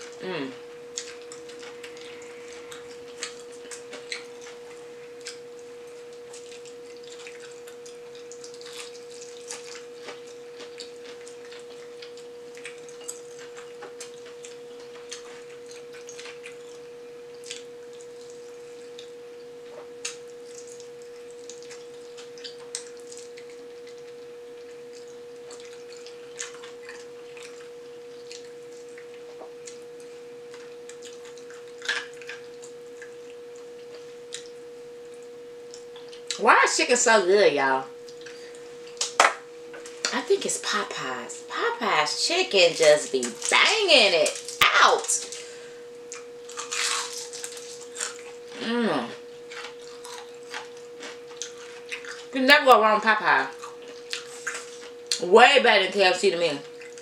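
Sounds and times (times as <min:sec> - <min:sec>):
mid-pitched hum tone: 0:00.0 - 0:57.0
chewing and lip smacks: 0:00.9 - 0:19.1, 0:19.7 - 0:36.4, 0:38.1 - 0:40.2, 0:46.1 - 0:48.5, 0:49.5 - 0:52.4, 0:53.5 - 0:55.2, 0:56.7 - 0:57.0.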